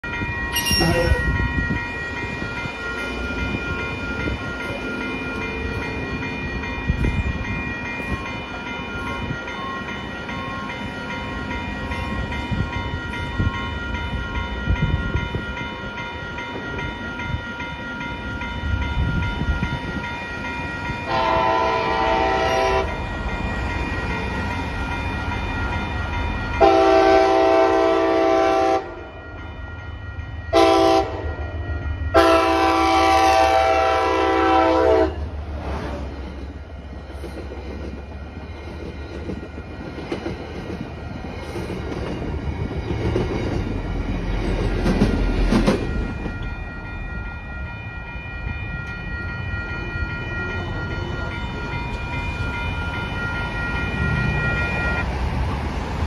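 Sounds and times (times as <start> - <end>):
diesel locomotive approaching: 0.0 - 56.0
railroad crossing bell ringing: 0.0 - 56.0
locomotive horn blasts: 21.1 - 22.9, 26.6 - 29.1, 30.5 - 31.3, 32.1 - 35.3.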